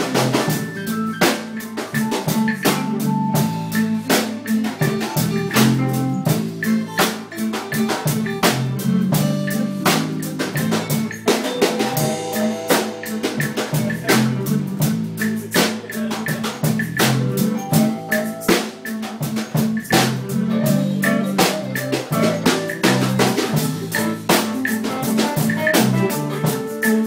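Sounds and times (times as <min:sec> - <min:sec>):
drum kit beat: 0:00.0 - 0:27.0
sustained guitar chords: 0:08.3 - 0:15.5.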